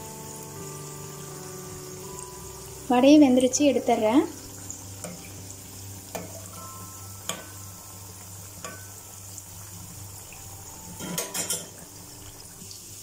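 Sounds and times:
fritters sizzling in oil: 0.0s - 13.0s
steel spoon clicking on pan: 7.2s - 7.6s, 11.0s - 11.7s.

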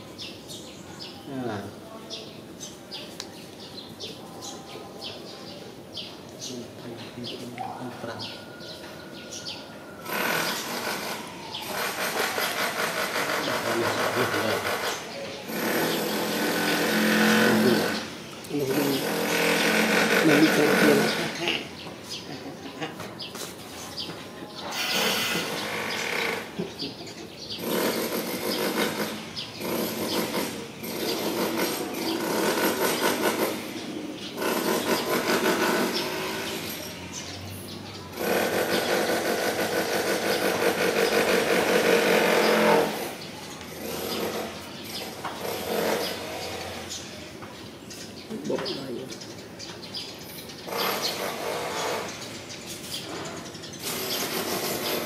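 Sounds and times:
power tool running: 10.0s - 18.1s, 18.7s - 21.4s, 24.7s - 26.6s.

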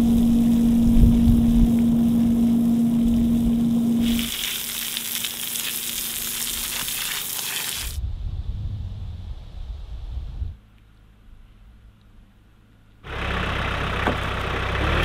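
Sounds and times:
pressure washer hum: 0.0s - 8.0s
water jet hissing on concrete: 4.0s - 8.0s.

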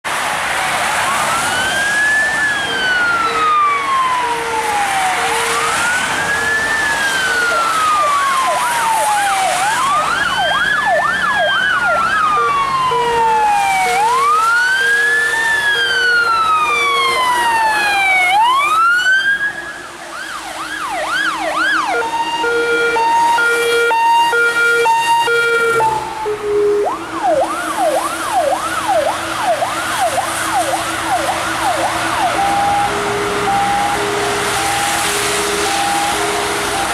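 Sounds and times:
siren wailing: 0.4s - 36.9s
siren yelping: 0.6s - 36.9s
horn blasts: 22.0s - 26.8s, 32.4s - 36.9s.

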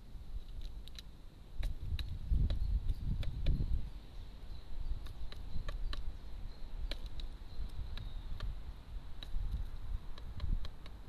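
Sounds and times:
faint steady high tone: 2.6s - 8.4s
bird bill clicking on plastic tray: 6.8s - 7.3s, 9.2s - 11.0s.

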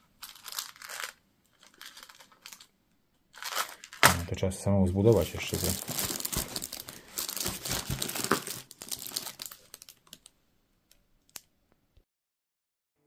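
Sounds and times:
plastic bags crinkling: 0.1s - 2.7s, 3.3s - 4.4s, 5.0s - 10.3s.

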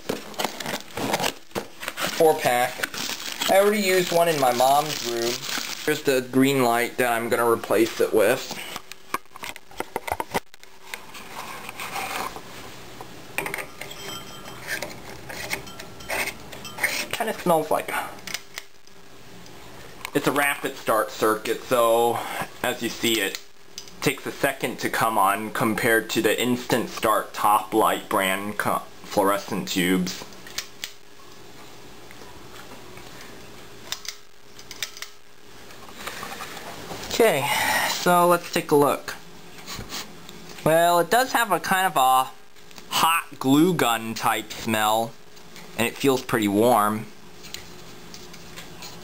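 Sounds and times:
steady low hum: 0.0s - 49.0s
faint held tone: 13.4s - 17.2s.

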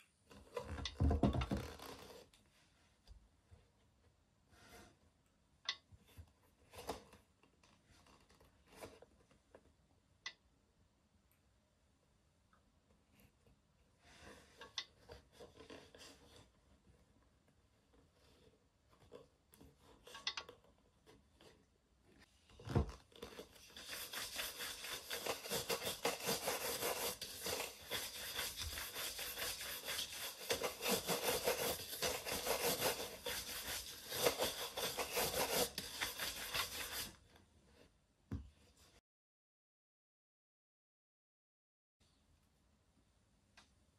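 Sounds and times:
brush sweeping over leather shoe: 23.6s - 37.2s.

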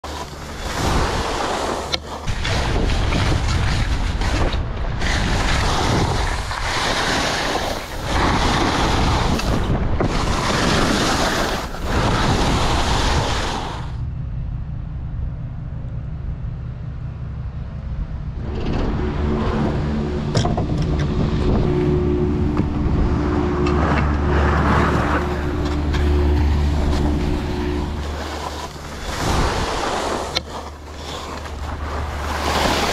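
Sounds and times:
skis scraping on snow: 0.0s - 14.0s, 23.8s - 32.9s
steady low hum: 0.0s - 32.9s
wind rushing over camera: 0.0s - 32.9s.

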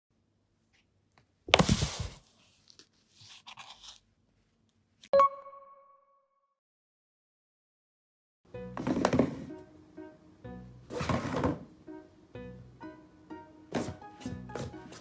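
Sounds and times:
cardboard box crunching: 1.6s - 2.3s
bell-like ding: 5.2s - 6.2s.

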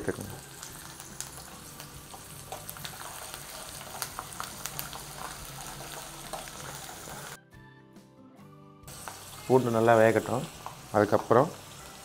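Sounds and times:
garlic sizzling in hot oil: 0.0s - 7.4s, 8.9s - 12.0s
mustard seeds popping in oil: 0.1s - 6.9s.

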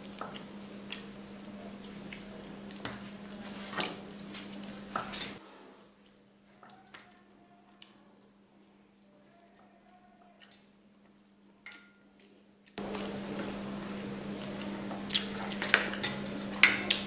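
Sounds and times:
wet chewing: 0.0s - 5.4s, 14.2s - 17.0s
steady low hum: 12.5s - 17.0s.

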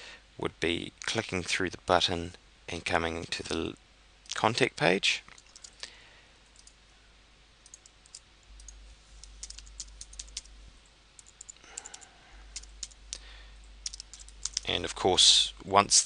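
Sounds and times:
keyboard typing clicks: 5.4s - 5.8s, 6.6s - 6.8s, 7.6s - 10.5s, 11.2s - 13.0s, 13.8s - 14.7s.

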